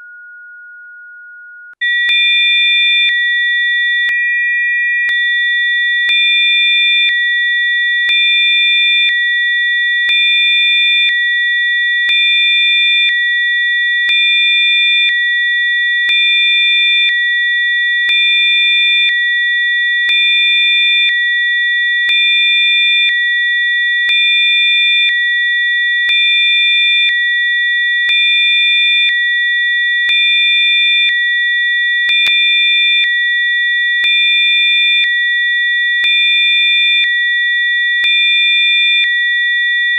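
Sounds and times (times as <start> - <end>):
high electronic sine tones: 0.0 - 3.2.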